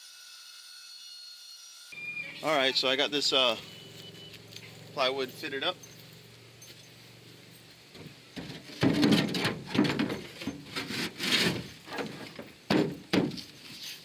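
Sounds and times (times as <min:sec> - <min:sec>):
plywood scraping on aluminum hull: 0:07.9 - 0:14.0
sharp knocks on aluminum hull: 0:08.0 - 0:10.4, 0:12.3 - 0:13.4.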